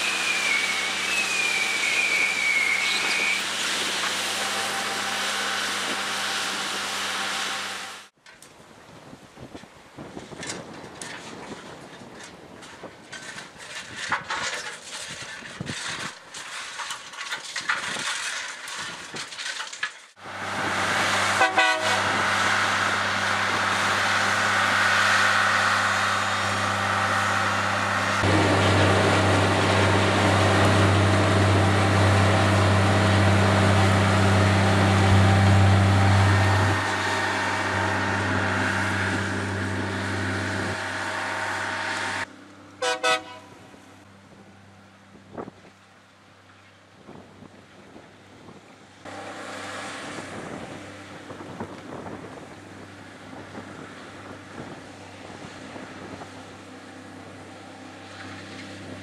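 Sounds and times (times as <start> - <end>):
loud steady machine drone: 0.0 - 8.1, 20.2 - 44.0, 49.1 - 59.0.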